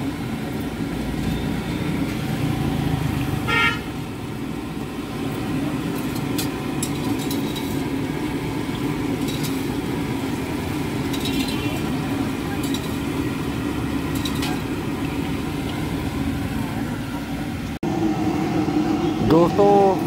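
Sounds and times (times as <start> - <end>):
street traffic rumble: 0.0 - 20.0
vehicle horn toot: 3.5 - 3.9.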